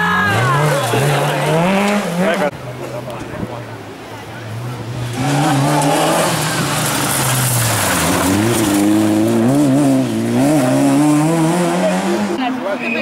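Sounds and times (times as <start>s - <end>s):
rally car engine revving hard: 0.2s - 2.6s, 4.5s - 12.4s.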